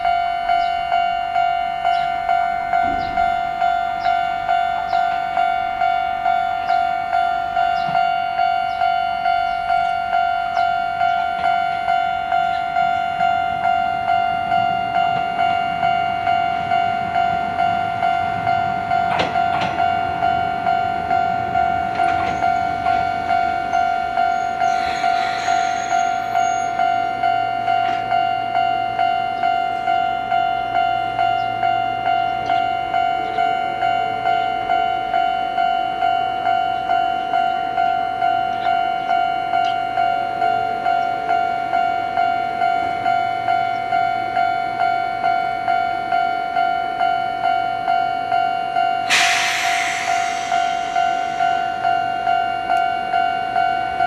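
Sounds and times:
level crossing bell ringing: 0.0 - 54.0
low train hum: 0.0 - 54.0
train running noise: 0.0 - 54.0
brief hiss: 49.1 - 51.6.

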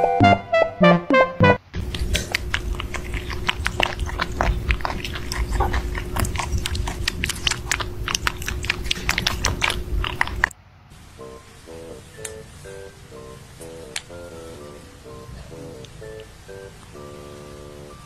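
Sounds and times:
steady low hum: 1.6 - 18.0
kittens eating from metal bowl: 1.8 - 10.5.

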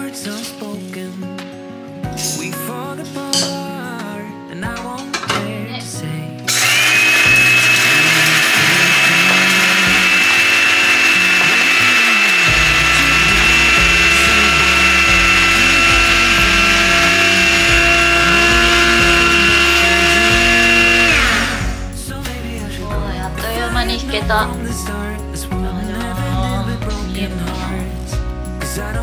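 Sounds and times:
coffee grinder motor whine: 6.5 - 22.0.

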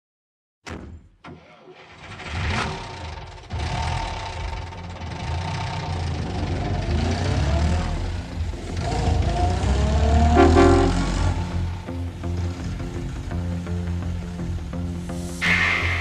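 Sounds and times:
car engine revving: 2.2 - 13.1.

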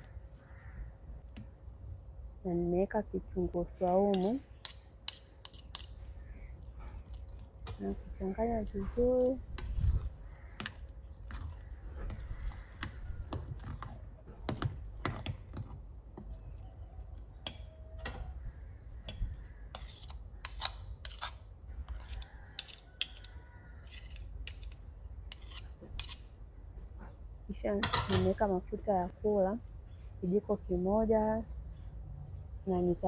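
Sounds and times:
spoon stirring thick batter: 4.1 - 16.6, 19.8 - 26.2
metal spoons scraping together: 19.7 - 26.2.

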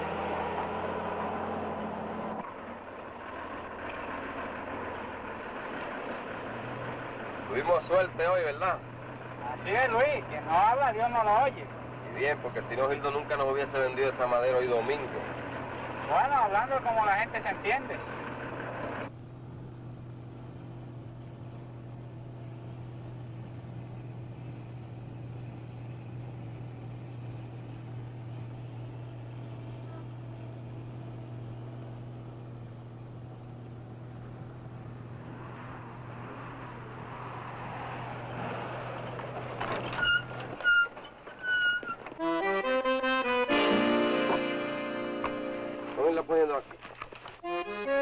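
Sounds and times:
truck engine droning: 0.0 - 48.0
music: 42.2 - 46.0, 47.4 - 48.0.

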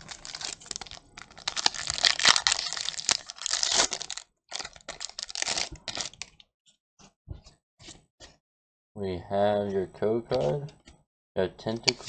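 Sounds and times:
foil wrapper crinkling and tearing: 0.0 - 6.3.

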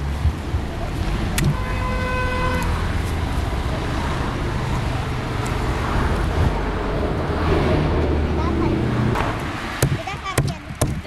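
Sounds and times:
road traffic noise: 0.0 - 11.0
vehicle horn toot: 1.5 - 2.8.

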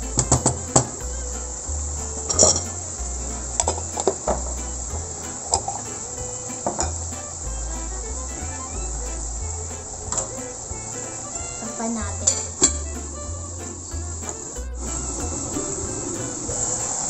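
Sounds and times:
kitchen utensils clinking: 2.0 - 7.4.

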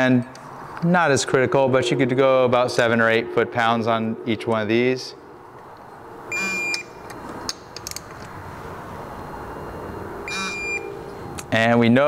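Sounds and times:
torque wrench beep: 6.3 - 7.4, 9.2 - 11.1.

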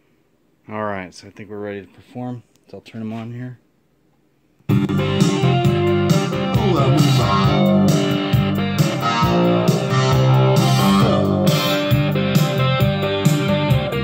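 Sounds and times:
guitar music with steady beat: 4.7 - 14.0.

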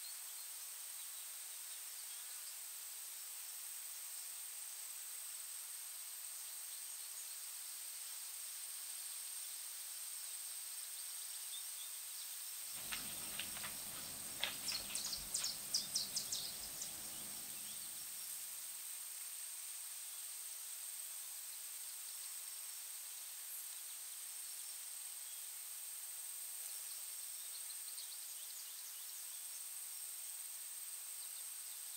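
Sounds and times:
steady high-pitched hiss: 0.0 - 31.9
sharp crackling rustles: 12.8 - 17.9
thin constant tone: 12.8 - 18.1.

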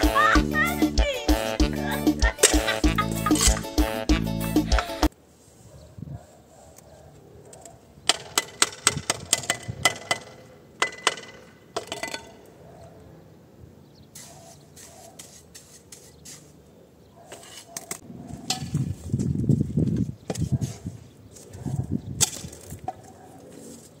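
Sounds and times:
bricks and mortar scraping: 2.4 - 3.8, 14.1 - 16.6, 17.2 - 18.0.

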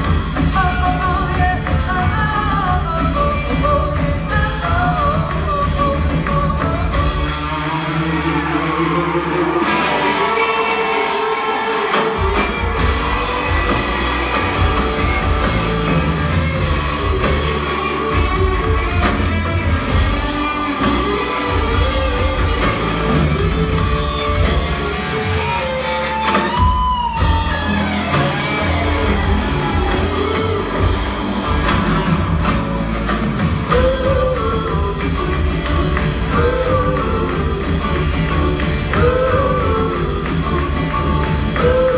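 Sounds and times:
upright bass: 0.0 - 10.2, 12.2 - 41.9
drums: 0.0 - 41.9
electric guitar: 0.0 - 41.9
woman singing: 0.3 - 7.6, 33.6 - 41.9.

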